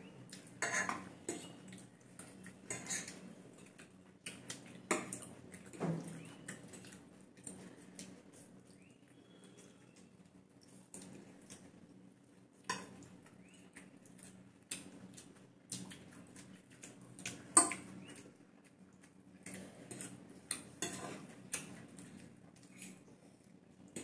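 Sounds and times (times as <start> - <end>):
forks clinking on ceramic plates: 0.6 - 1.5, 19.9 - 21.2.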